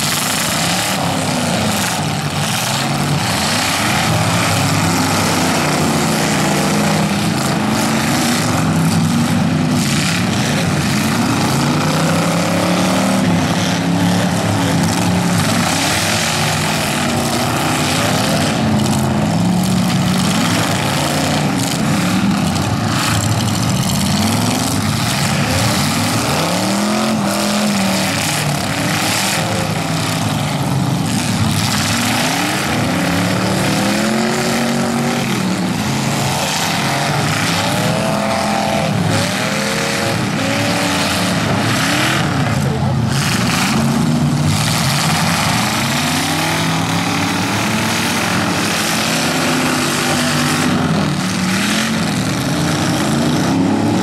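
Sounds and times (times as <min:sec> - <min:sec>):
car engines revving: 0:00.0 - 0:54.0
tyres spinning in dirt: 0:00.0 - 0:54.0.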